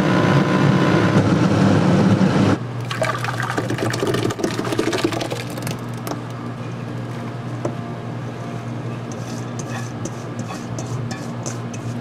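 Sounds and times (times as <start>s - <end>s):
steady low hum: 1.2s - 12.0s.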